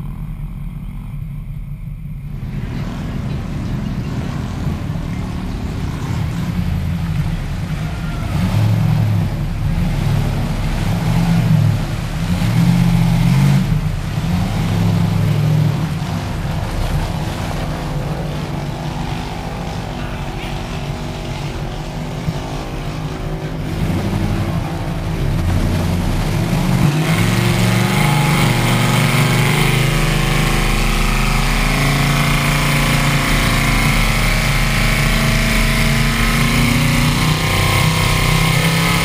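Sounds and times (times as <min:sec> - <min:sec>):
truck engine revving hard: 0:02.3 - 0:39.0.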